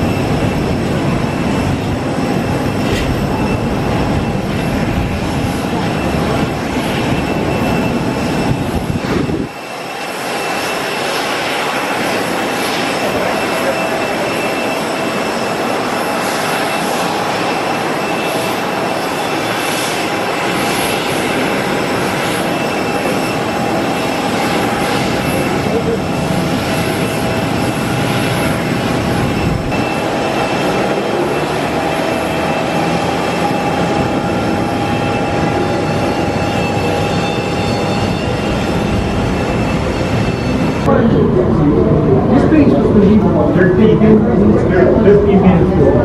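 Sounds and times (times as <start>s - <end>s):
heavy low rumble: 0.0s - 9.5s, 23.5s - 46.0s
jet engine whine: 0.0s - 46.0s.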